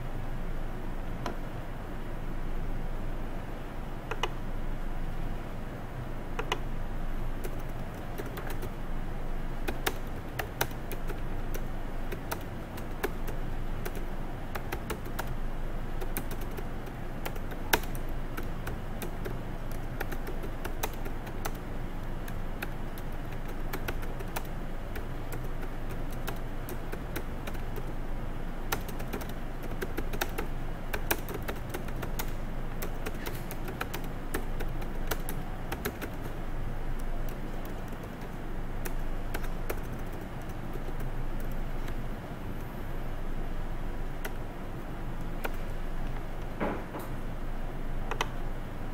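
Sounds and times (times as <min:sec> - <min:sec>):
keyboard typing clicks: 0:04.1 - 0:04.4, 0:06.4 - 0:06.7, 0:07.4 - 0:08.8, 0:09.7 - 0:15.4, 0:16.0 - 0:27.9, 0:28.7 - 0:36.4, 0:37.0 - 0:42.0, 0:45.2 - 0:47.1, 0:48.1 - 0:48.4.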